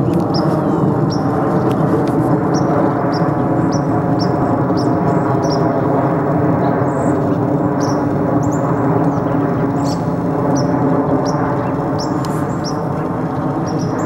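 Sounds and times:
loud steady drone: 0.0s - 14.0s.

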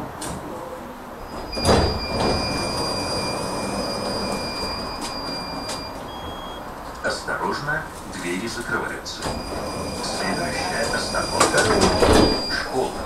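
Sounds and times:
low hum of tram: 0.0s - 13.0s
high electronic beep: 1.6s - 6.6s.

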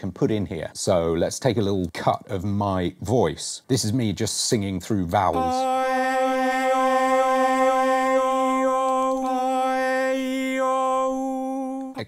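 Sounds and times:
synthesized male voice singing vowels: 5.3s - 12.0s.

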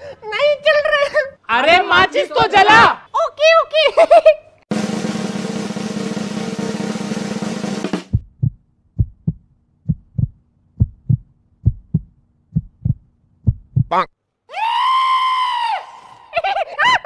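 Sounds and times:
drum roll: 4.7s - 9.4s
heartbeat thumps: 8.0s - 14.0s.

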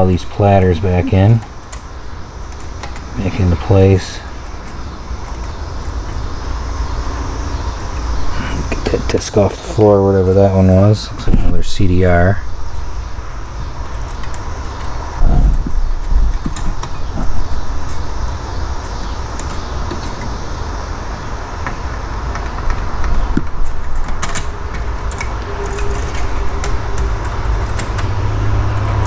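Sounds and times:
steady low rumble: 0.0s - 18.9s.

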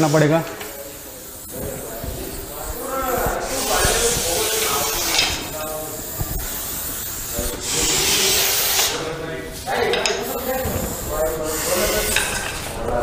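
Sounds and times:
snake hissing: 10.4s - 12.3s.

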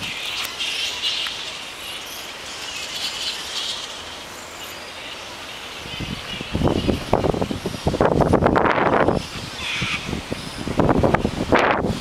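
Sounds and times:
high-pitched animal calls: 9.6s - 10.1s.

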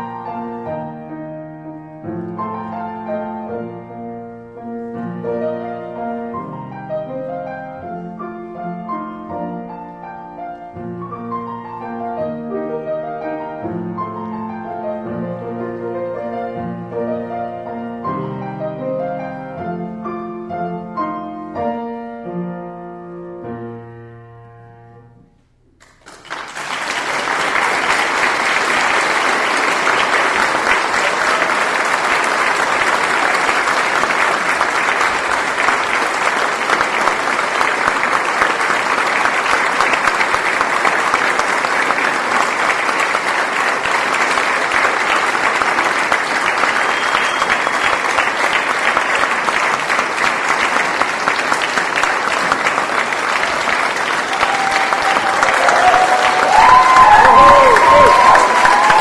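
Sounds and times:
piano music: 0.0s - 25.8s
audience applauding: 25.8s - 59.0s.

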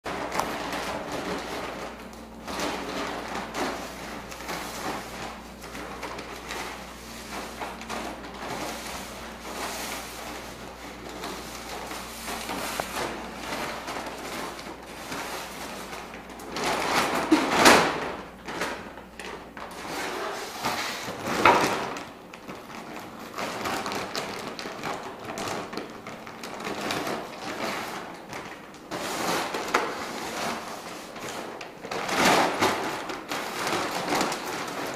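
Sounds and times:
plastic bag crinkling and rustling: 0.1s - 34.9s
bag sliding on concrete floor: 2.4s - 17.6s, 19.7s - 21.7s.

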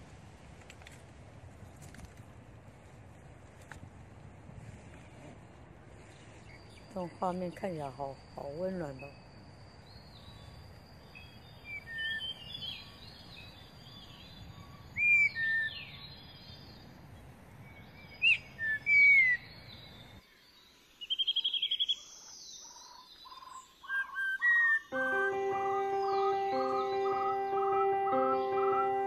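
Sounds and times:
steady outdoor hiss: 0.0s - 29.0s
plucked guitar music: 25.0s - 29.0s.

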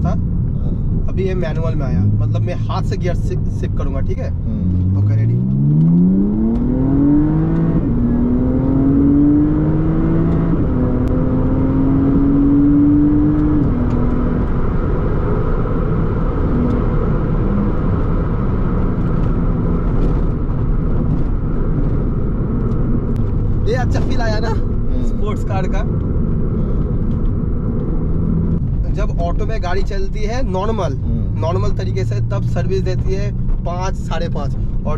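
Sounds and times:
road and tyre noise: 0.0s - 34.9s
car engine revving and shifting: 4.3s - 29.9s.

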